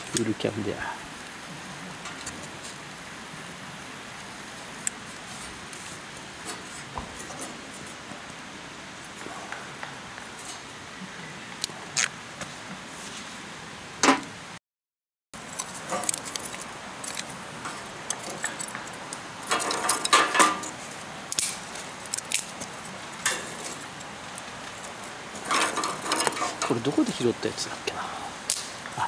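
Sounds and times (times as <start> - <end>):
wooden sticks knocking on metal grill: 19.5 - 20.8.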